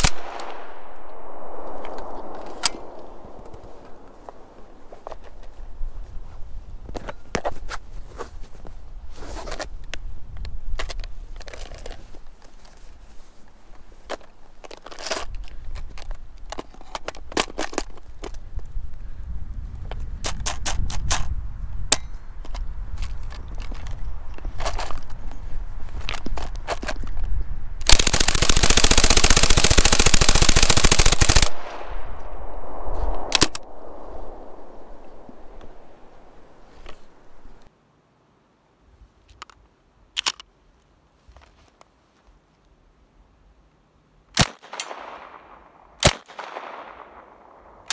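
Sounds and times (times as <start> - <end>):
gunfire echo: 0.0 - 5.0, 27.9 - 37.6, 44.4 - 47.9
sharp clicks: 0.0 - 5.4, 27.8 - 37.7
low steady rumble: 0.1 - 5.1, 31.5 - 37.7
submachine gun full-auto burst: 27.9 - 32.0
footsteps crunching in snow: 32.4 - 37.7.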